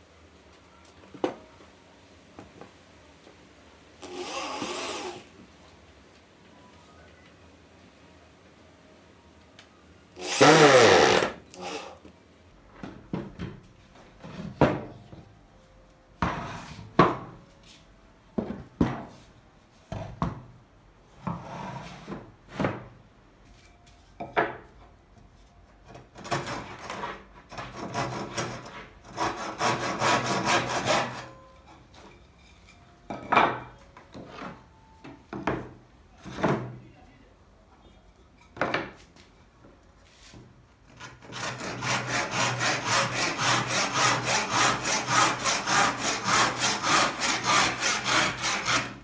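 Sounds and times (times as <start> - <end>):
electric drill winding down: 10.2 - 11.3.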